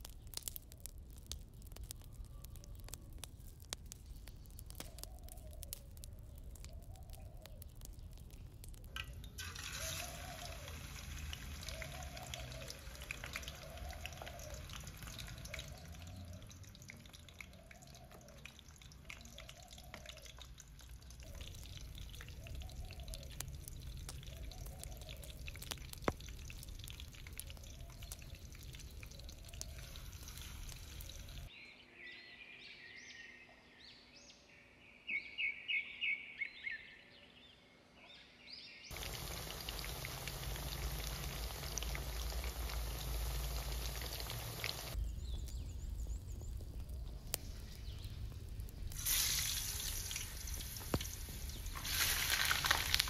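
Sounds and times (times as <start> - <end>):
crackling wood fire: 0.0 - 31.5, 38.9 - 53.0
birds singing: 4.1 - 48.4
food sizzling in hot oil: 4.8 - 31.5, 38.9 - 45.0, 46.0 - 53.0.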